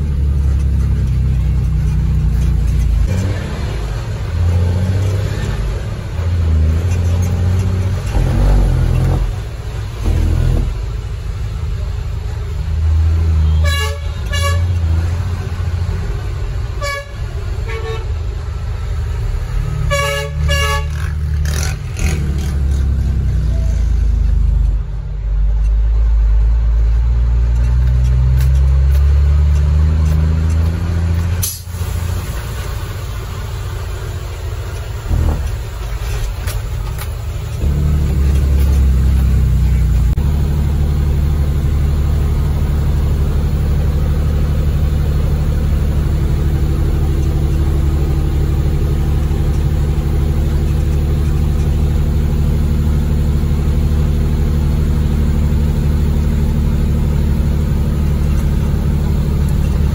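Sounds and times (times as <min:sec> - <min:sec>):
truck diesel engine pulling hard: 0:00.0 - 0:59.9
horn toots: 0:13.3 - 0:14.9, 0:16.8 - 0:18.2, 0:19.7 - 0:22.6.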